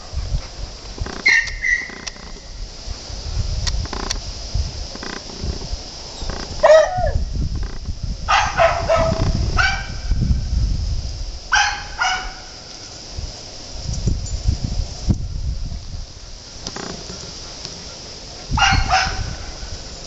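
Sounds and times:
dogs yipping and barking: 1.1 - 2.5, 6.2 - 7.3, 8.3 - 10.0, 11.5 - 13.1, 16.3 - 20.0.

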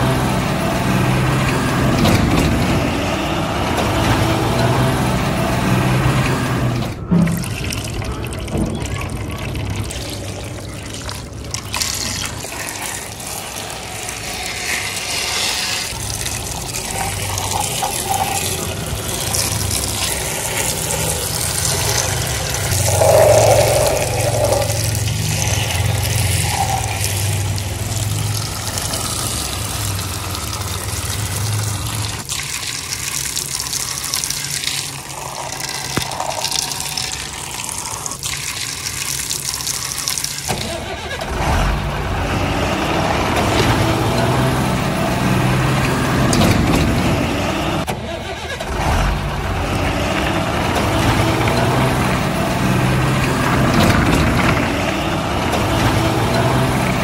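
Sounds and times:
water from a hose splashing: 3.8 - 41.8, 49.4 - 57.0
low hum: 16.2 - 29.2.

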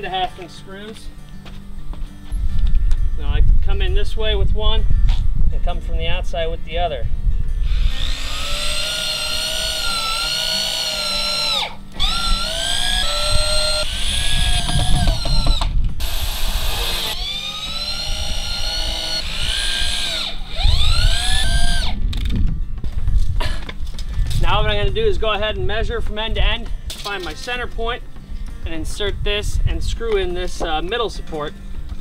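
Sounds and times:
power drill driving screws: 7.6 - 22.0.

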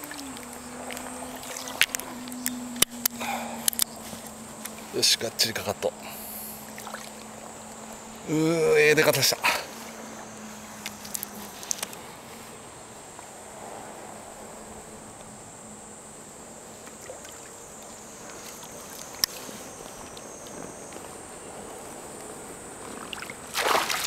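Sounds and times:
high-pitched insect buzz: 0.0 - 12.6
soft water sounds: 0.0 - 15.3, 16.4 - 20.3, 22.9 - 24.0.

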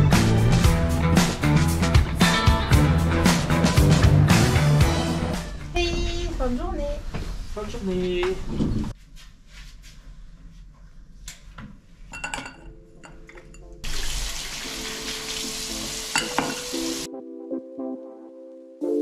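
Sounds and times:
tap running into sink: 16.1 - 16.8.

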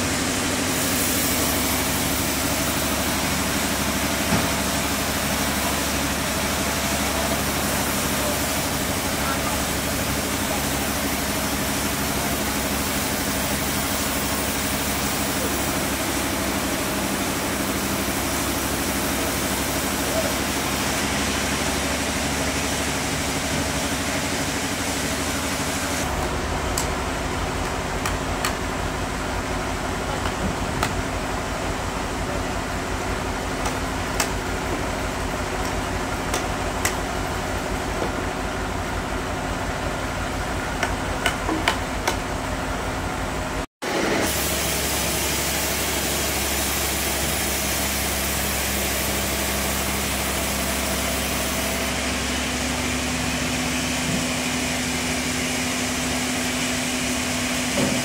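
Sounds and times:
engine running: 0.0 - 58.0
hammers striking wood and metal: 27.6 - 28.8, 30.2 - 31.0, 33.6 - 34.9, 35.6 - 37.1, 40.8 - 42.3.

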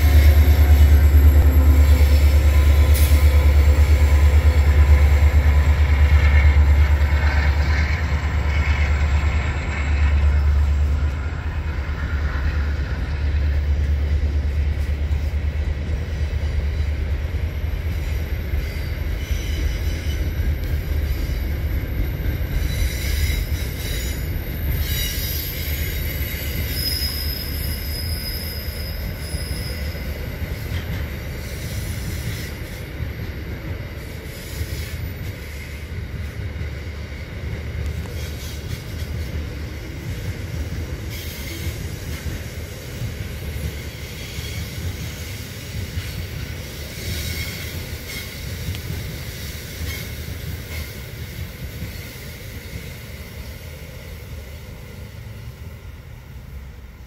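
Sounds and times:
locomotive engine rumble: 0.0 - 22.8
train wheels on rails: 0.0 - 57.0
high wheel squeals: 17.9 - 30.7.

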